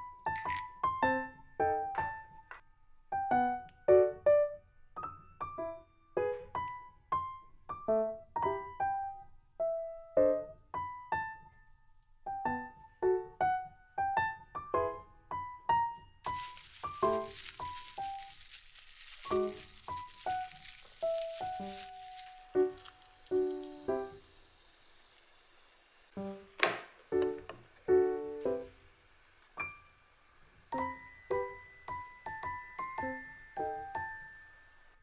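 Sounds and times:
gentle solo piano: 12.3s - 24.3s
plastic wrap crinkling: 16.3s - 25.8s.

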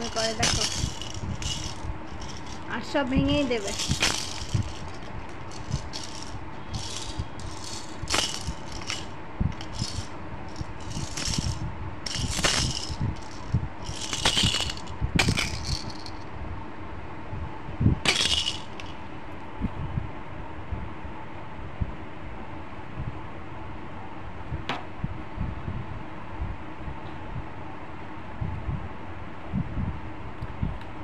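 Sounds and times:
plastic toy rattle shaken: 0.0s - 16.2s, 18.1s - 19.0s.

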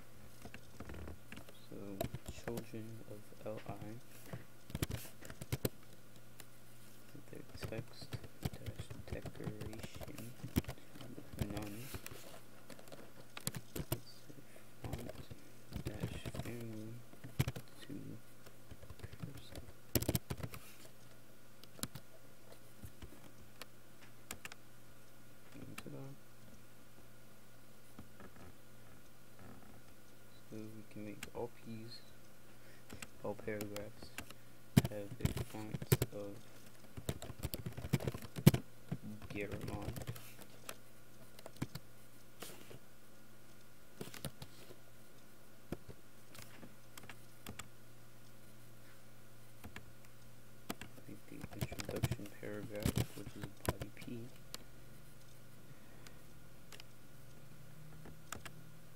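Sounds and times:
low electrical hum: 0.0s - 58.9s
computer keyboard keystrokes: 4.7s - 5.8s, 7.5s - 12.1s, 12.7s - 14.0s, 14.8s - 17.7s, 18.7s - 20.6s, 21.6s - 22.0s, 24.3s - 24.6s, 32.9s - 36.2s, 37.0s - 38.6s, 39.2s - 41.8s, 44.0s - 44.5s, 45.8s - 47.7s, 50.7s - 54.0s, 58.0s - 58.6s.

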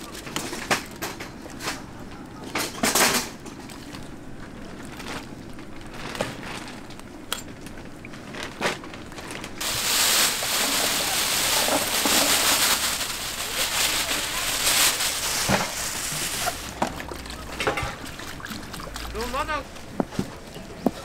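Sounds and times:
hot oil sizzling: 9.6s - 16.8s.

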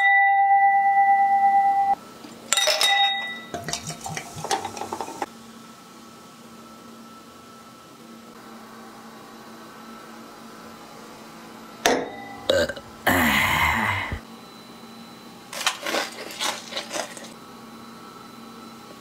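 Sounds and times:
loud rough belch: 12.3s - 13.3s
chewing crunchy food: 15.5s - 17.4s.

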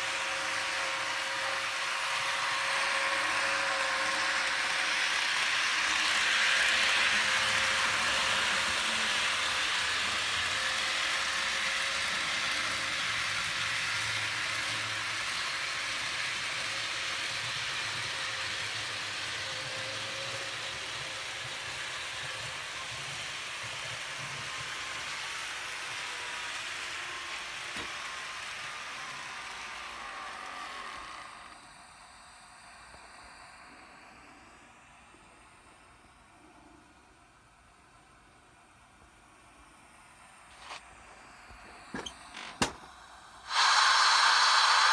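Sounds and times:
model train wheels whirring: 0.0s - 44.9s.

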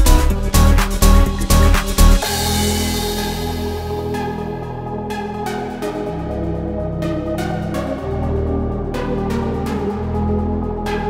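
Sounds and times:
percussive beat: 0.0s - 4.6s
synth chords: 0.0s - 11.0s.

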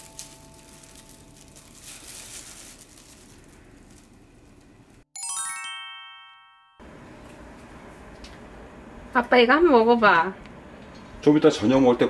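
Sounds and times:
background music held notes: 0.0s - 2.3s
faint rustling: 0.0s - 5.0s
glockenspiel-like chime run: 5.2s - 6.8s.

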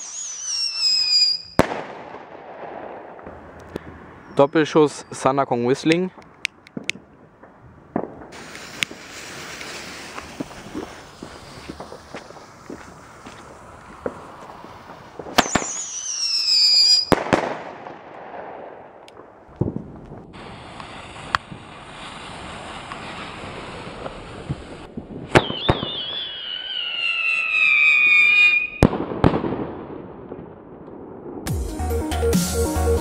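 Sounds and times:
firework whistle: 0.0s - 1.8s, 8.3s - 17.4s, 20.4s - 28.9s
firework shell launch crack: 0.0s - 4.0s, 6.2s - 27.2s
firework bang: 1.6s - 4.0s, 6.8s - 31.5s.

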